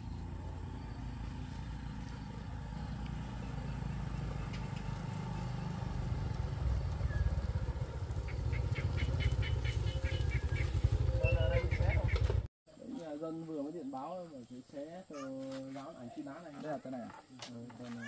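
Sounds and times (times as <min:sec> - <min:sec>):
vehicle engine rumbling: 0:00.0 - 0:12.5.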